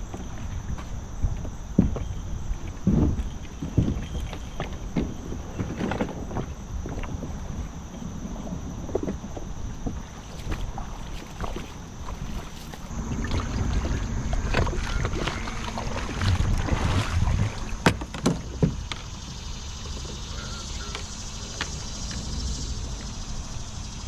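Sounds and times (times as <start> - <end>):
wind rumble on microphone: 0.0 - 24.0
sharp knocks on kayak: 16.3 - 19.1.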